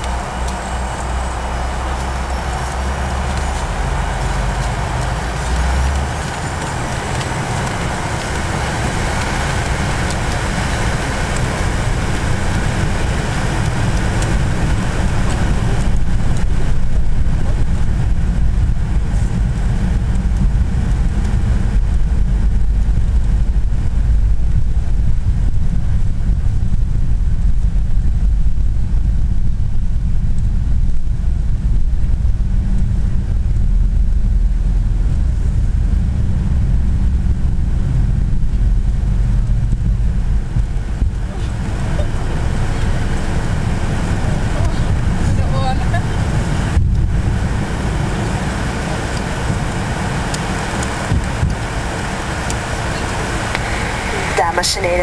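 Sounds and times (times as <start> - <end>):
jet engines spooling up: 0.0 - 22.2, 33.2 - 55.0
loud low cabin rumble: 0.0 - 55.0.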